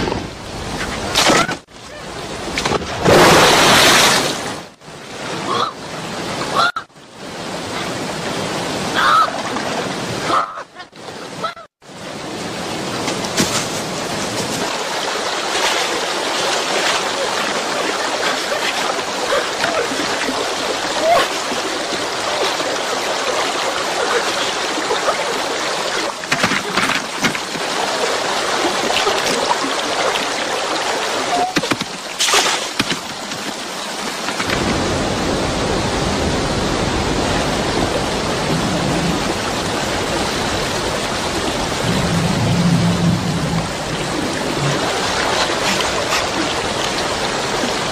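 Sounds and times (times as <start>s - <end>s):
water splashes: 0.0s - 47.9s
white-water river rushing: 11.1s - 47.9s
deep rumble of current: 41.4s - 45.1s.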